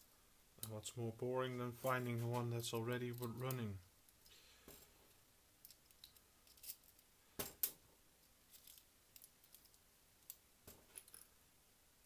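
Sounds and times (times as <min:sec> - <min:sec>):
small metal and plastic parts clicking: 0:05.6 - 0:07.8, 0:08.5 - 0:11.3.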